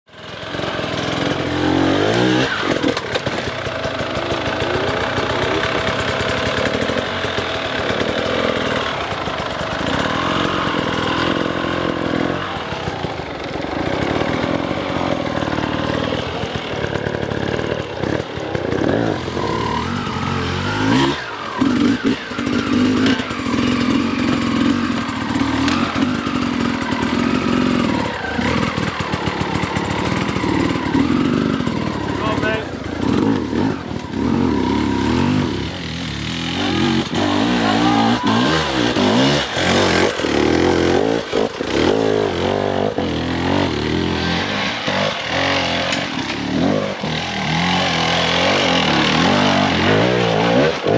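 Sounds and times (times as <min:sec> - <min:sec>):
dirt bike engines revving: 0:00.1 - 0:50.9.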